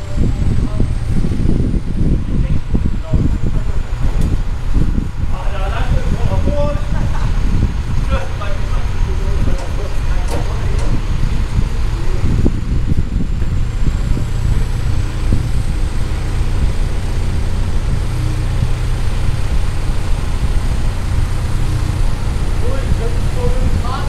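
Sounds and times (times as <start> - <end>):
diesel engine rumbling: 0.0 - 24.0.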